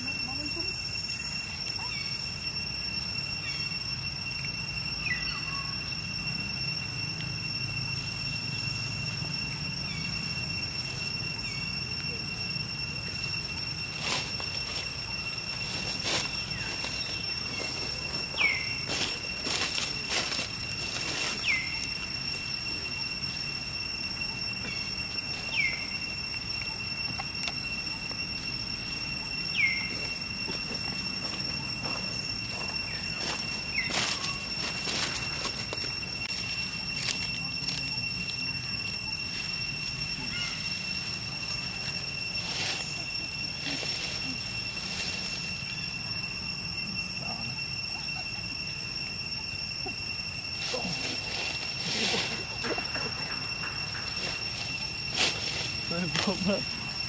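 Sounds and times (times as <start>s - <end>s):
high-pitched drone: 0.0s - 57.0s
high-pitched whine: 0.0s - 57.0s
dry rustles: 53.9s - 56.8s.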